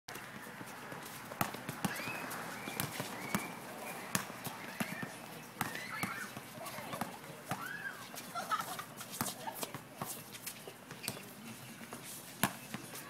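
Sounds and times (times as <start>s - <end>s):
soccer ball being kicked: 1.4s - 6.3s
shoe squeals: 1.8s - 6.8s, 7.6s - 8.2s.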